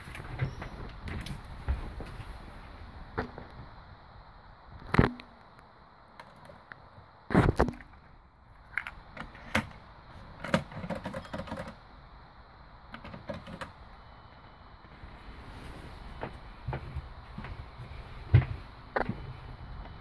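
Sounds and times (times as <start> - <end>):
cassette deck clicks and rattles: 8.8 - 11.8, 12.9 - 13.7.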